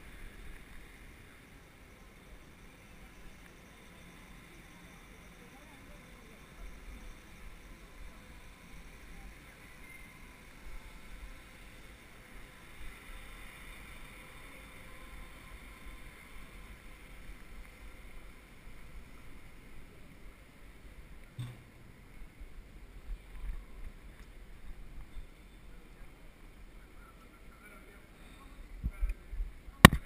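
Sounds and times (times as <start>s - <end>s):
low thump: 21.4s - 22.0s.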